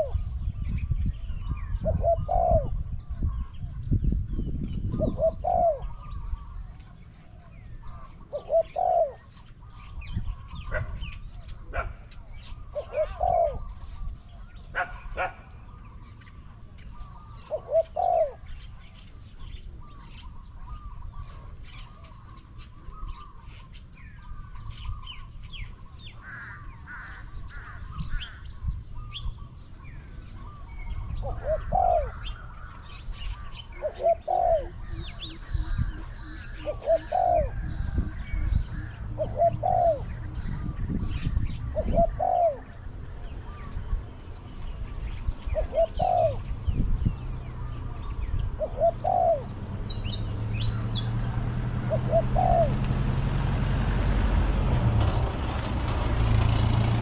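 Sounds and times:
dove cooing: 0.0 - 0.5, 1.6 - 3.8, 4.9 - 23.4, 29.0 - 44.1, 45.4 - 46.7, 47.5 - 49.6, 50.7 - 53.3
small birds twittering: 0.0 - 57.0.

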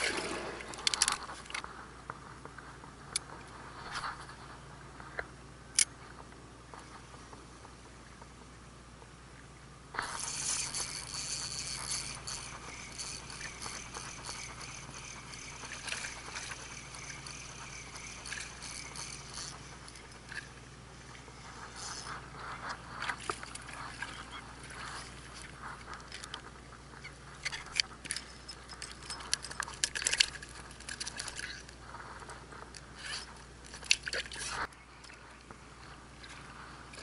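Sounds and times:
fishing reel whirring: 10.0 - 26.3, 27.4 - 34.8.

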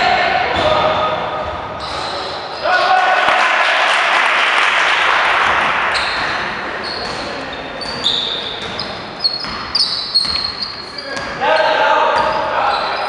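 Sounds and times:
crowd noise in gymnasium: 0.0 - 13.0
basketball shoes squeaking: 1.4 - 2.6, 5.9 - 11.4, 12.1 - 13.0.

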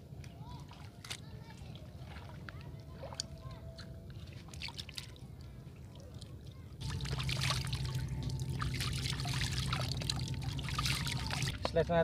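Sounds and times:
water splashing and dripping: 0.7 - 11.8
low rumble: 6.8 - 11.7.

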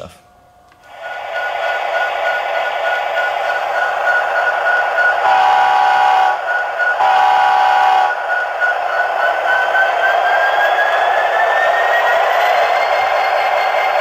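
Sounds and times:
rising tone: 0.8 - 14.0
air horn blasts: 5.2 - 6.4, 7.0 - 8.2.

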